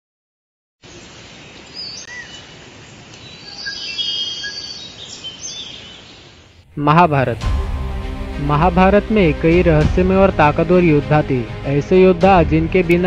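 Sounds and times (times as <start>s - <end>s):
steady forest hiss: 0.8s - 9.6s
bird chirps and whistles: 3.4s - 6.0s.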